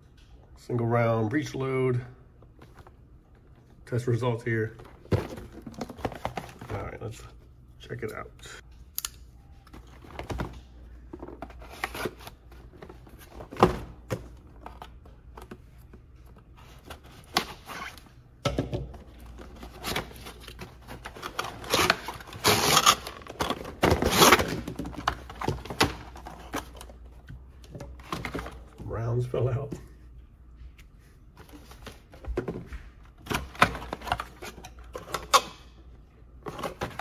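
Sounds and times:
cardboard tearing: 19.7s - 24.7s.

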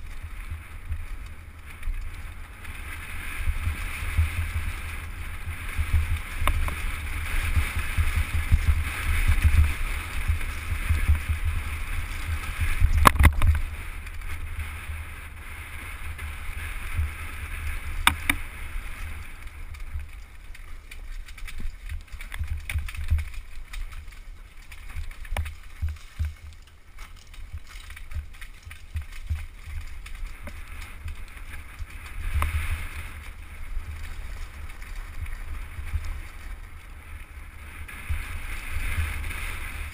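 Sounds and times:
wind buffeting microphone: 0.0s - 20.2s
bike rattling: 0.0s - 39.9s.

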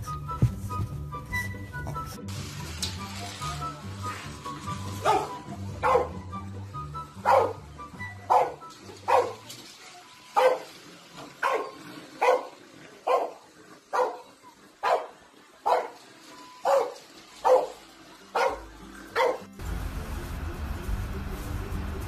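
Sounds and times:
dog barking: 5.0s - 6.2s, 7.2s - 7.6s, 8.3s - 9.4s, 10.4s - 10.7s, 11.4s - 16.0s, 16.6s - 19.5s.

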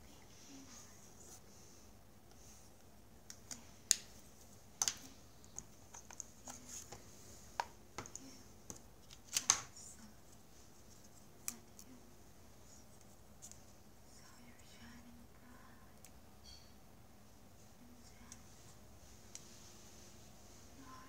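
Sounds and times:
small objects tapping on a desk: 7.6s - 9.7s.

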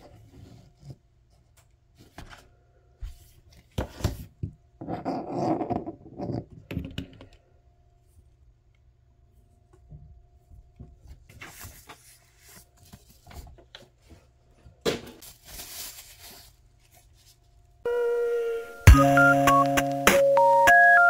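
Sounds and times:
music with steady tones: 17.9s - 21.0s.

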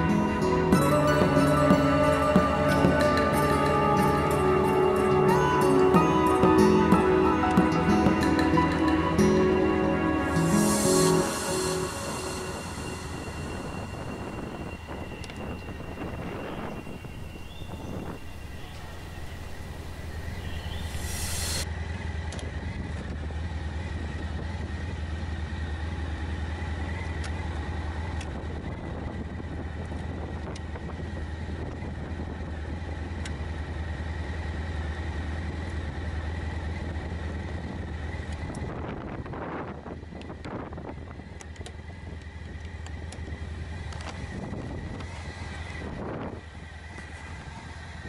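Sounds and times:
motorcycle engine idling: 21.7s - 48.0s.

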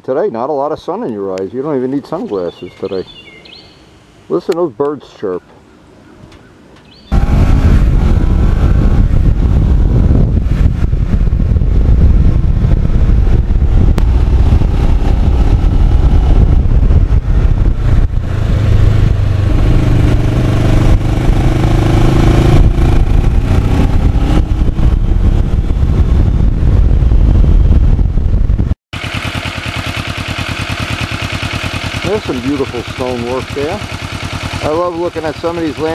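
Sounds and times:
wind buffeting on microphone: 7.1s - 28.8s
motorcycle engine running: 7.1s - 35.9s
pulsing engine sound: 7.1s - 35.9s.

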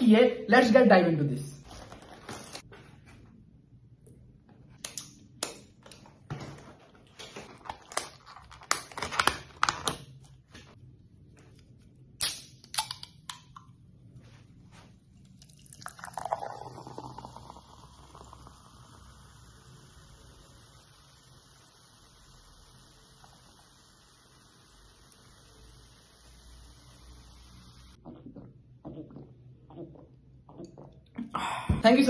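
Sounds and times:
can opening crack: 4.8s - 6.0s, 12.2s - 13.7s
cola pouring and fizzing: 15.1s - 31.0s.

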